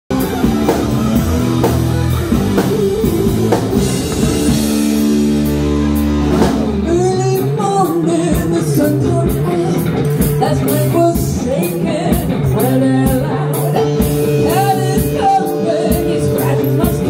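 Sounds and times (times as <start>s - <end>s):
drum kit: 0.1s - 17.0s
electric guitar chords: 0.1s - 17.0s
woman singing: 6.9s - 17.0s.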